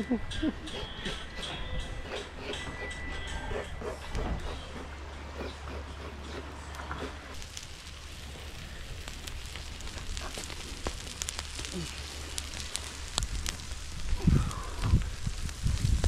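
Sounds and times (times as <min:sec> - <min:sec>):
fire embers crackling: 0:04.8 - 0:16.0
low rumble: 0:07.4 - 0:16.0.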